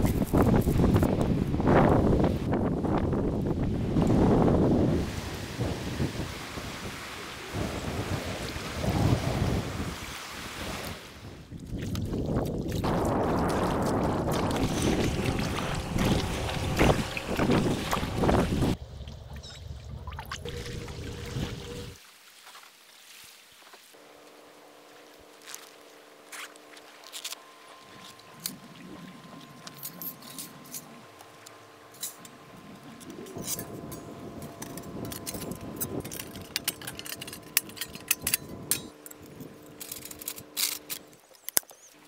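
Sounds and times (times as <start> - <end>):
wind buffeting microphone: 0.0 - 18.8, 32.4 - 39.6
choppy water and waves: 0.0 - 42.0
water splashing around paddled kayak: 4.9 - 24.0.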